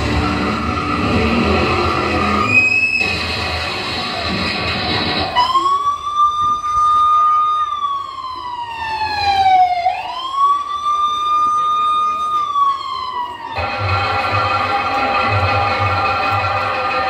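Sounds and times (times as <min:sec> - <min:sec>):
dense music: 0:00.0 - 0:05.4, 0:13.6 - 0:17.0
siren wailing: 0:00.0 - 0:14.8.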